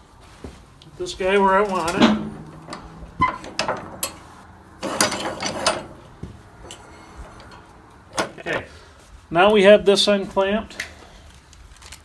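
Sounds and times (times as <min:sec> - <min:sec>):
metal knocks: 0:01.6 - 0:08.7.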